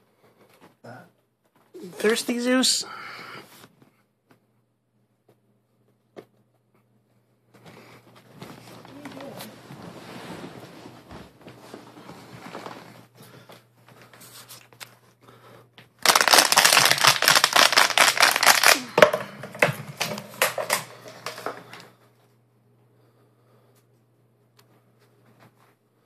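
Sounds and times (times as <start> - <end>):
faint rustling: 7.6 - 13.5
dog crunching plastic bottle: 16.0 - 21.8.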